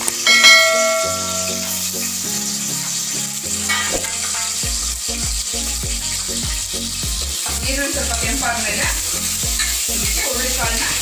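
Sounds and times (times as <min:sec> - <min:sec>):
onion sizzling in hot oil: 0:00.0 - 0:11.0
ringing chime: 0:00.2 - 0:01.8.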